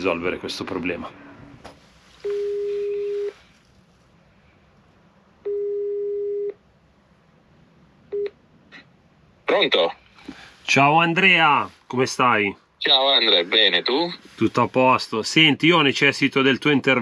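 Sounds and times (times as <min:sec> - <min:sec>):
telephone ringback beeps: 0:02.2 - 0:03.4, 0:05.5 - 0:06.6.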